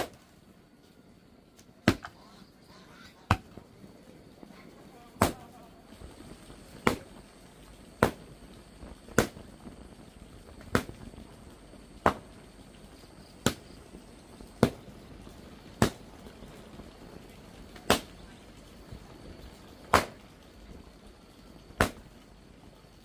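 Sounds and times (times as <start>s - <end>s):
hand tool chopping blows: 19.9s - 20.2s.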